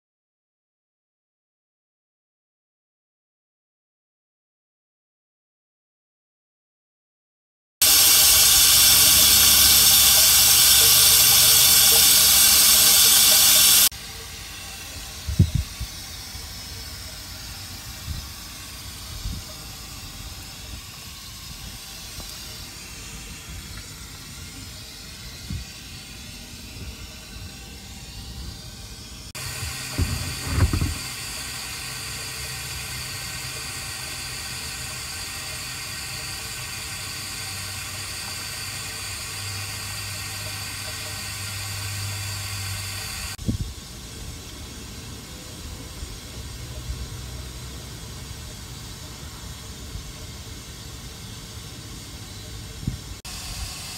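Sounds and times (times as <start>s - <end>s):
steady hiss: 7.8s - 53.9s
dull thumps on microphone: 30.0s - 31.0s.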